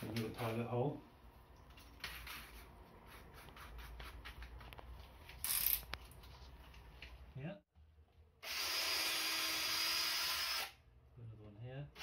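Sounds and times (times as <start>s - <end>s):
drill rasping burst: 8.4s - 10.8s.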